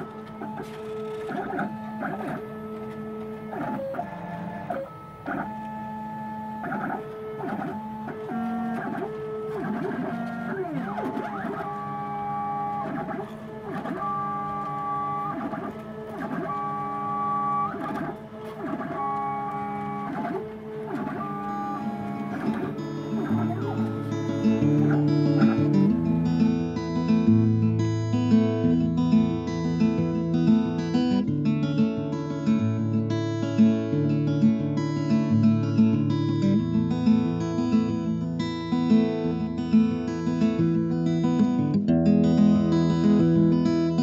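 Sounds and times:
stepper motors whining: 0:00.0 - 0:27.6.

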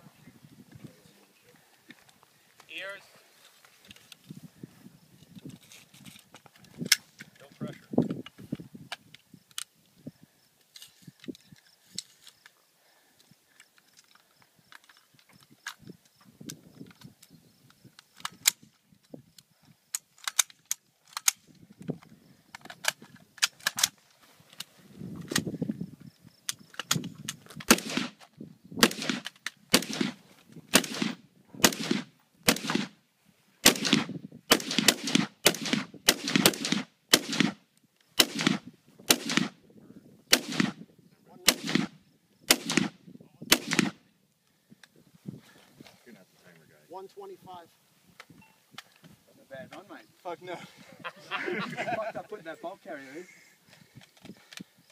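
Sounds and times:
metallic clicks of rifle assembly: 0:05.2 - 0:09.8, 0:13.2 - 0:25.5, 0:26.5 - 0:27.8
rifle shots: 0:27.7 - 0:28.2, 0:28.8 - 0:33.0, 0:33.6 - 0:37.6, 0:38.2 - 0:39.6, 0:40.3 - 0:40.8, 0:41.4 - 0:44.0.

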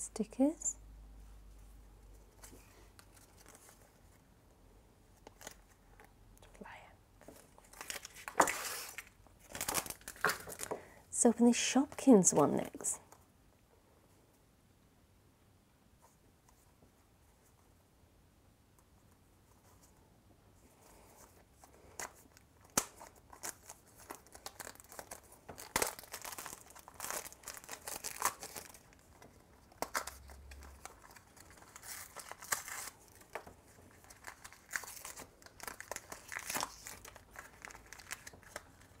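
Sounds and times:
plastic shrink-wrap crinkling: 0:07.6 - 0:10.8, 0:22.0 - 0:39.0
foil bag crinkling: 0:23.3 - 0:33.3, 0:34.0 - 0:39.0.

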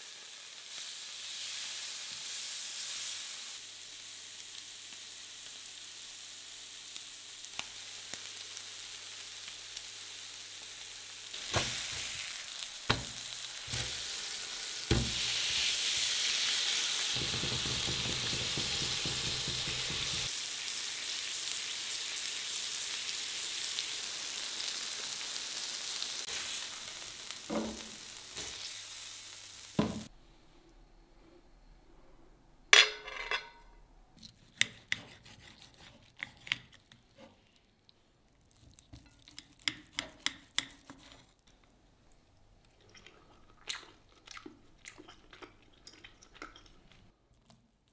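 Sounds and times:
steaks sizzling on a grill plate: 0:00.0 - 0:29.8
utensil knocking on metal plate: 0:17.2 - 0:20.2.

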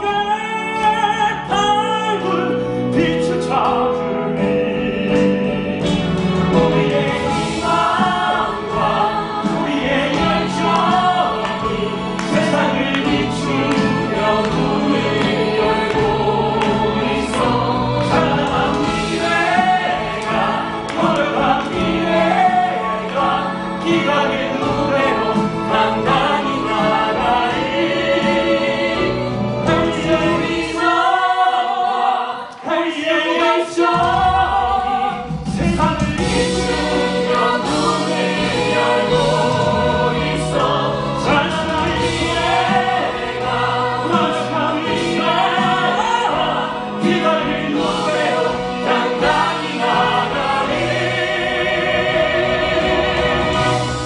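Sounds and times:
man singing: 0:00.0 - 0:06.0
instrumental backing: 0:00.1 - 0:32.6, 0:33.4 - 0:54.0.

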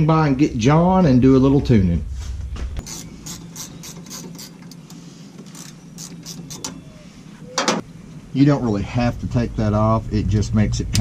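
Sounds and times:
ratchet wrench clicking: 0:02.8 - 0:06.8.

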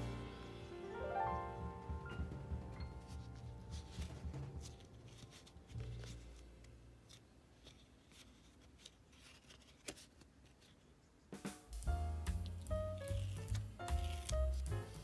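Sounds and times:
paper rustling and crackling: 0:03.1 - 0:11.0, 0:12.4 - 0:15.0
paper creasing clicks: 0:12.4 - 0:15.0.

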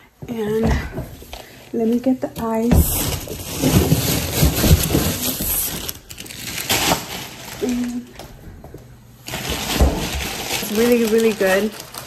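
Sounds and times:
ice cubes clattering: 0:09.3 - 0:12.0.

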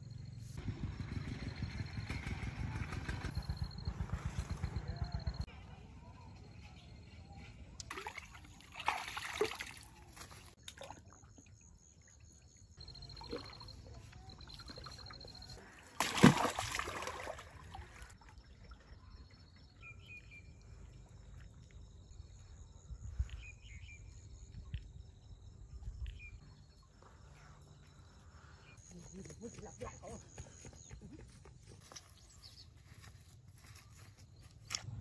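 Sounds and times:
fish splashing in water: 0:07.9 - 0:11.0, 0:13.0 - 0:18.1.

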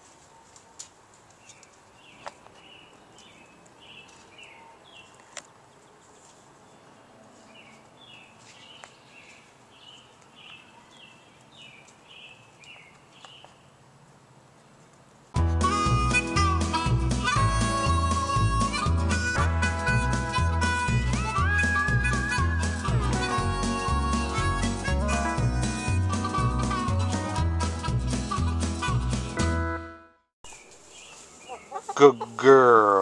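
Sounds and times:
outdoor background noise: 0:00.0 - 0:15.4, 0:30.4 - 0:33.0
bird chirping: 0:01.4 - 0:13.8, 0:30.4 - 0:33.0
harmonica music: 0:15.4 - 0:30.2.

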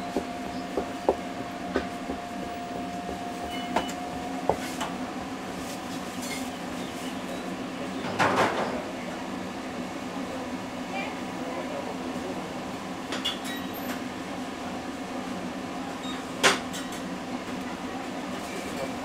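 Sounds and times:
cleaver chopping on wooden board: 0:00.1 - 0:03.2.

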